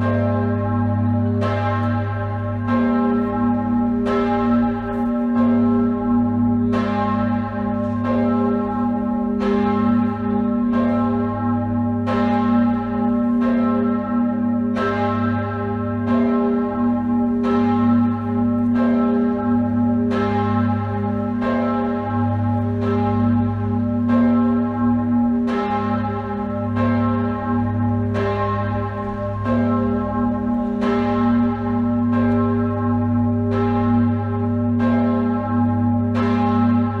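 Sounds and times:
church bell tolling: 0.0s - 37.0s.

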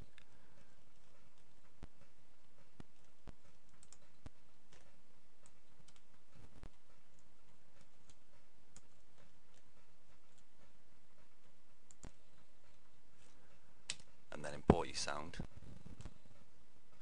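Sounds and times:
computer mouse clicks: 2.8s - 10.7s, 11.4s - 12.2s, 13.9s - 14.1s.

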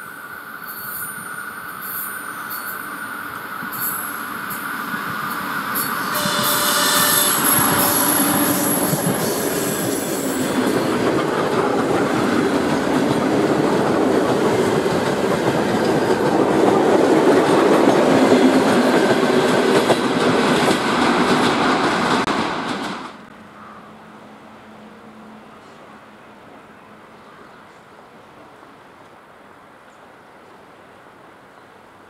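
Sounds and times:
high wheel squeal: 0.0s - 10.7s
train wheels rumbling on rails: 0.7s - 23.3s.

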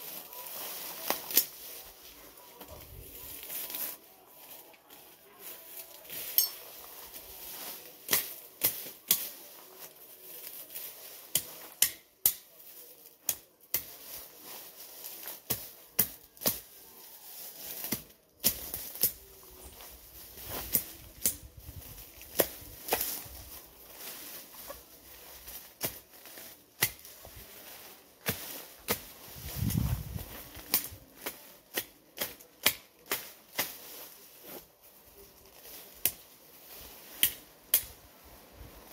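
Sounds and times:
machete chopping weeds: 7.6s - 9.4s, 11.0s - 12.5s, 13.2s - 14.2s, 15.1s - 16.8s, 17.7s - 19.4s, 20.4s - 23.3s, 25.4s - 34.1s, 35.6s - 38.0s.

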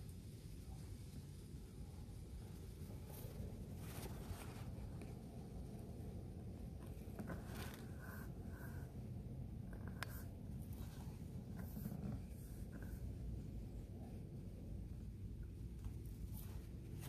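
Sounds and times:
low steady rumble: 0.0s - 17.0s
clothing rustling and scraping: 2.8s - 9.0s, 9.6s - 17.0s.

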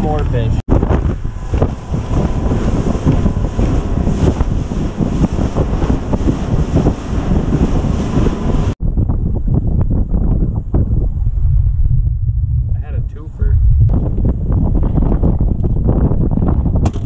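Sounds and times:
waves slapping hull: 0.0s - 8.8s
boat running at speed: 0.0s - 11.2s
wind buffeting microphone: 0.0s - 17.0s.

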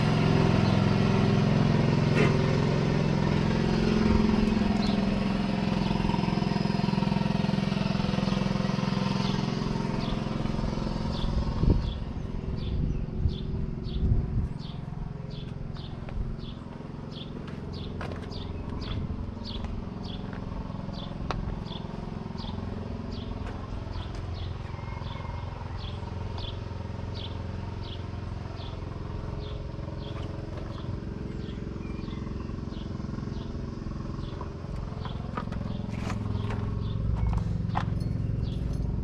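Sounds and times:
tractor diesel engine idling: 0.0s - 39.0s
bird chirping: 11.1s - 28.0s, 29.4s - 38.9s.

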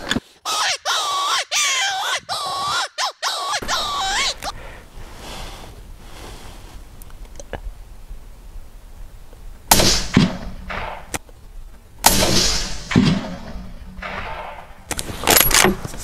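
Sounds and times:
rifle shots: 9.7s - 11.2s, 12.0s - 15.7s.

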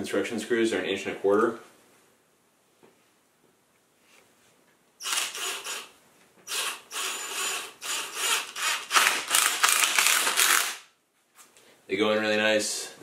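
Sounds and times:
impact driver rattling: 6.5s - 10.8s.

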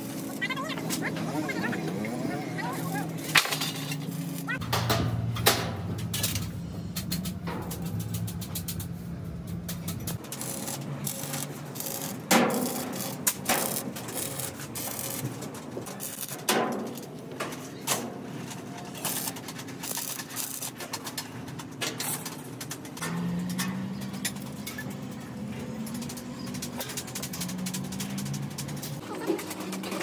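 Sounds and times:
crackling arc welding: 0.0s - 17.1s, 17.8s - 21.2s.

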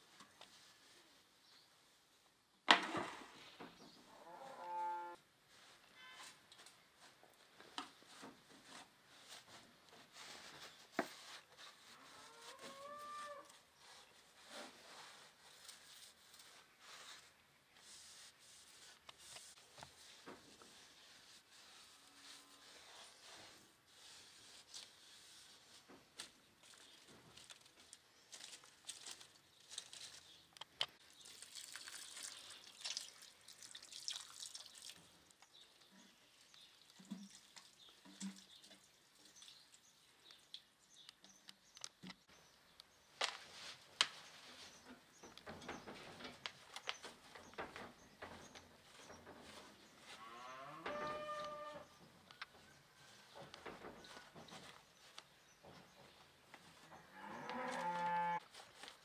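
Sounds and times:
cow mooing: 4.2s - 5.2s, 50.2s - 51.8s
cloth rubbing on pots: 5.4s - 27.0s, 43.5s - 52.0s
water trickling into pot: 31.1s - 35.2s.

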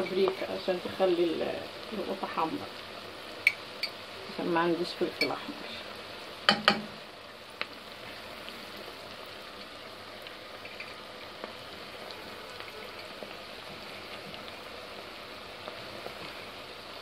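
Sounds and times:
onions sizzling in a pot: 0.0s - 17.0s
small pops and crackles: 7.5s - 7.8s, 9.6s - 14.6s.

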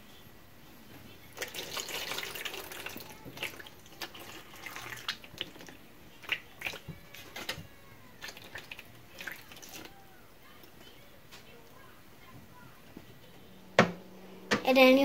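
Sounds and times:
water pouring into metal pan: 1.4s - 7.6s, 8.2s - 9.9s
water splashes and drips: 1.4s - 7.6s, 8.2s - 9.9s.

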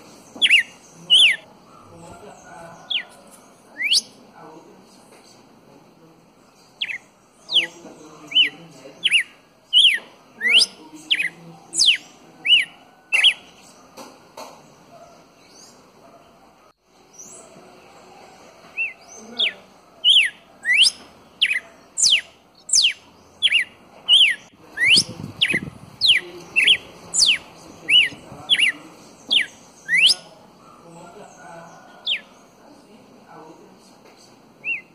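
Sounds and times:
bird singing whistled notes: 0.4s - 1.4s, 3.8s - 4.2s, 6.8s - 13.5s, 18.7s - 30.3s, 32.0s - 32.4s, 34.6s - 34.9s.

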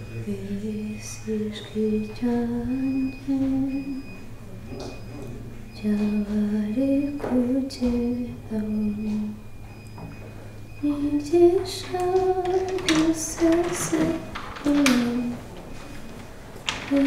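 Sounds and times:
woman singing slow melody: 0.1s - 4.1s, 5.8s - 9.4s, 10.8s - 15.5s, 16.8s - 17.0s.

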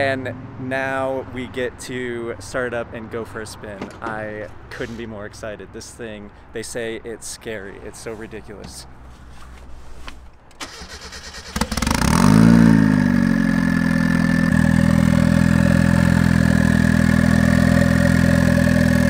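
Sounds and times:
starter cranking: 10.5s - 13.0s
car engine revving and idling: 11.5s - 19.0s.

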